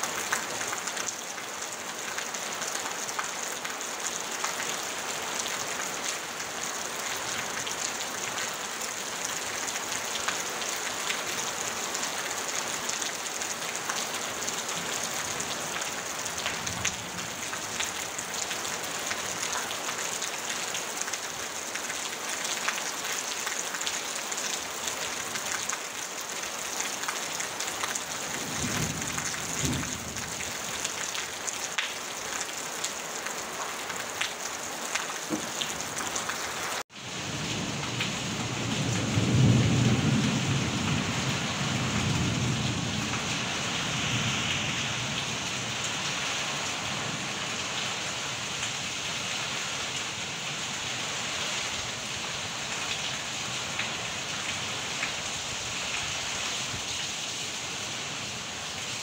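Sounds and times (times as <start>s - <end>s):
rain on a tin roof: 0.0s - 59.0s.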